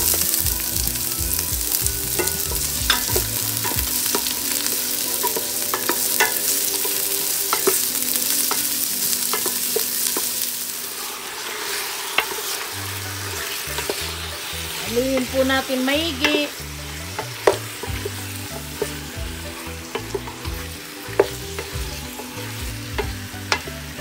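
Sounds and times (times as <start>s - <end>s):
vegetables sizzling in hot oil: 0.0s - 24.0s
wooden spoon knocking pot: 2.0s - 4.3s.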